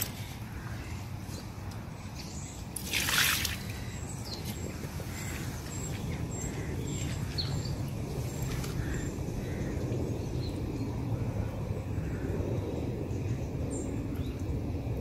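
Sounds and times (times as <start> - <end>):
steady low rumble: 0.0 - 15.0
water splashing from bucket: 2.7 - 3.9.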